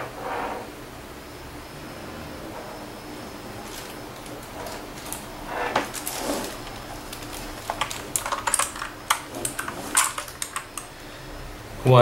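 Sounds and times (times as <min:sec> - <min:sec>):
keyboard keycaps clicking: 0:06.6 - 0:10.9.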